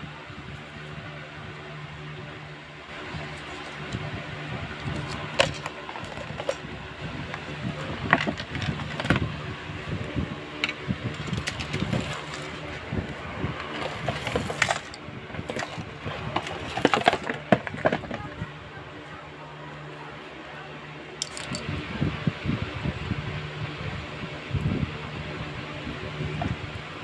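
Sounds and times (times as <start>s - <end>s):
steady low hum: 0.0s - 27.0s
handling clicks taps and rustles: 4.8s - 6.6s, 7.3s - 9.3s, 10.6s - 18.4s, 21.2s - 21.6s.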